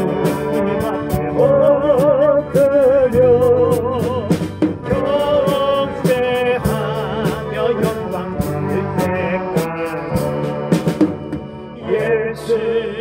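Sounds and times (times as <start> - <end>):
drum beats: 0.0 - 12.1
church band playing a hymn: 0.0 - 13.0
lead melody with vibrato: 0.0 - 13.0
sustained keyboard chords: 0.0 - 13.0.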